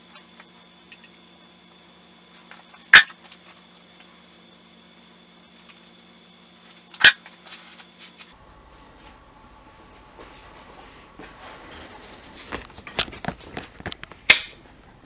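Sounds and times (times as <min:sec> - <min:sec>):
sharp metal clanks: 0:02.9 - 0:03.2.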